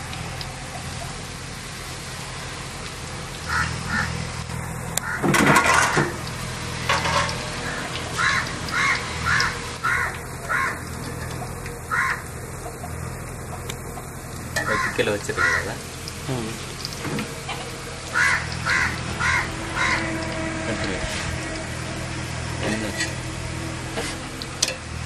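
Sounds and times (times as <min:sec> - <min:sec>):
food sizzling in oil: 0:00.0 - 0:25.0
loud rough noise: 0:01.2 - 0:25.0
crows cawing: 0:03.4 - 0:04.2, 0:05.0 - 0:05.3, 0:07.6 - 0:11.0, 0:11.8 - 0:12.4, 0:14.6 - 0:15.9, 0:18.1 - 0:20.6.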